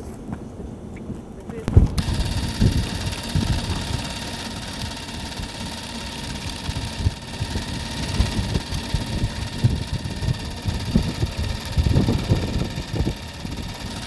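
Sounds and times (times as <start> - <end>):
wind rumble on microphone: 0.4 - 4.0, 6.7 - 14.0
film camera motor whirring: 1.9 - 14.0.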